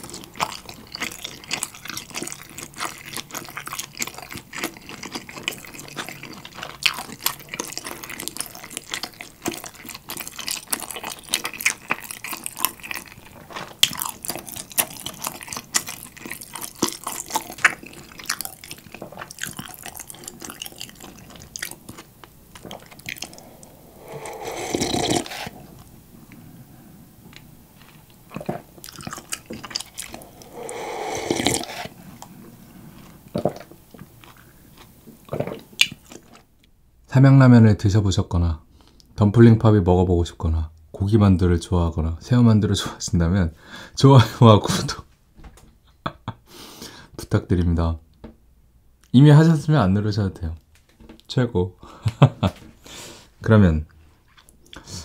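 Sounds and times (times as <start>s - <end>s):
chewing with wet smacks: 0.0s - 23.7s, 27.3s - 30.5s, 32.9s - 36.5s
slurping broth: 16.7s - 27.4s, 28.3s - 33.7s.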